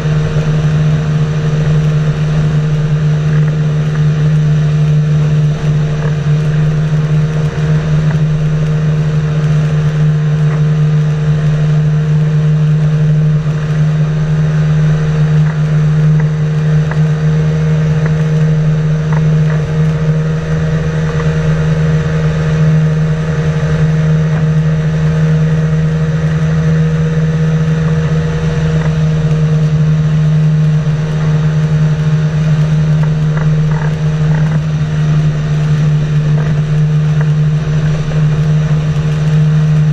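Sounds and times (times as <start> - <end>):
engine and propeller drone: 0.0 - 39.9.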